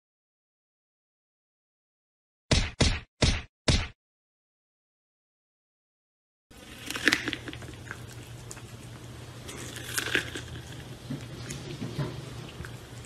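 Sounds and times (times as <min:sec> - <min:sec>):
cat crunching corn kernels: 0:06.5 - 0:13.0
low steady hum: 0:06.5 - 0:13.0.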